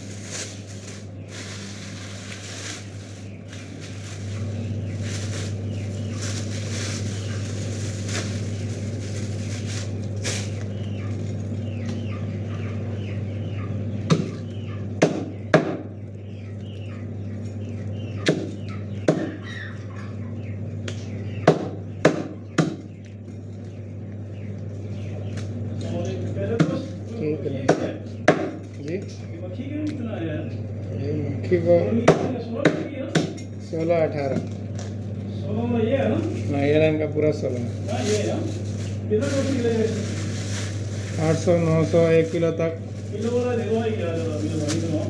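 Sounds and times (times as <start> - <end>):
plastic bag rustling: 0.0 - 11.6, 36.1 - 45.0
steady low hum: 0.0 - 45.0.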